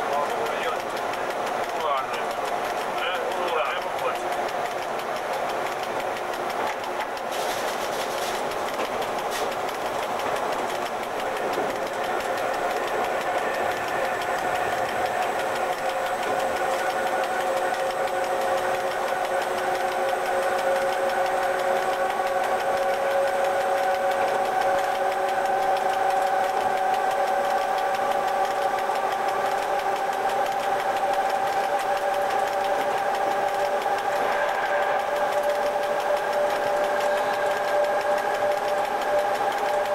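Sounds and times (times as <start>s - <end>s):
electric locomotive whine: 0.0s - 39.9s.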